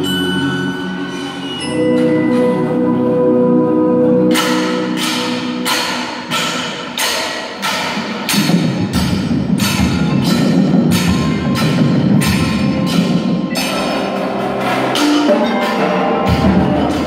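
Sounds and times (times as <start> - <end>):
drums and mallets: 0.0 - 17.0
drumline strikes: 4.3 - 17.0.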